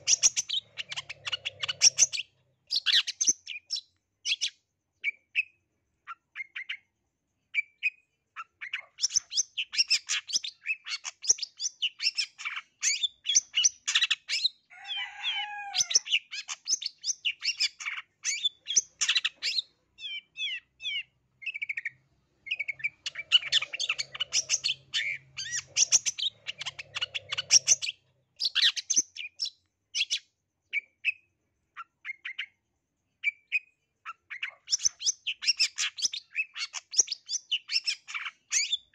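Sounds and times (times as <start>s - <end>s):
bird singing varied chirps: 0.0s - 32.6s, 33.2s - 38.9s
harsh falling bird squawk: 14.7s - 16.4s.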